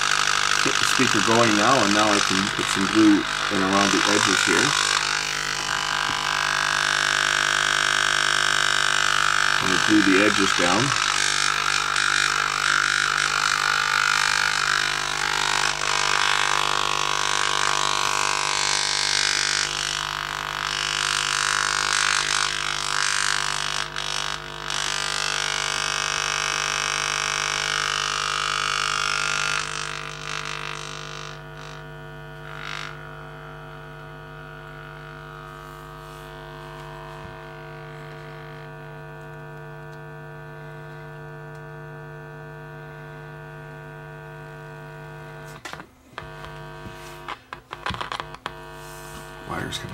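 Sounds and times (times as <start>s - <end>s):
speaker woofer low tone drone: 0.0s - 14.7s, 31.9s - 45.6s, 46.2s - 49.9s
harsh noisy buzz: 0.0s - 49.9s.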